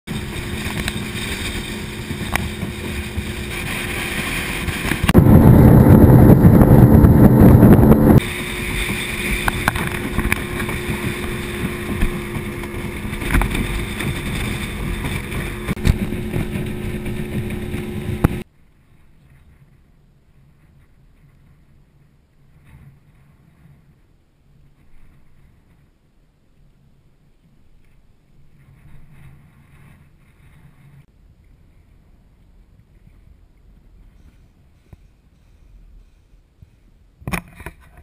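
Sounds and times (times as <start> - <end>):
outboard motor running: 0.1 - 18.4
rushing water: 0.1 - 18.4
wind rushing on microphone: 0.1 - 18.5.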